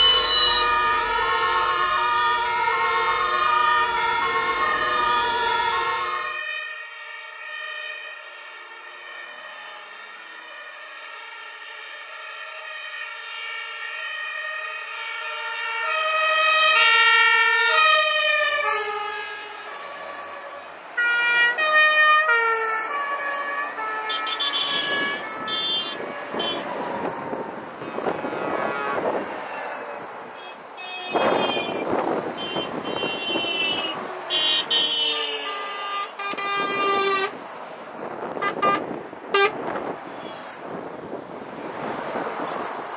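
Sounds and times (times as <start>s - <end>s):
heavy trucks driving past: 0.0s - 6.4s, 15.1s - 42.9s
two-tone fire engine sirens: 0.0s - 42.6s.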